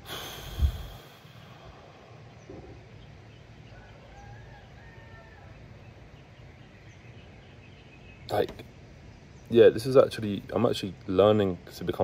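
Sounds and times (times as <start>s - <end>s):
faint bird chirps: 0.6s - 10.1s.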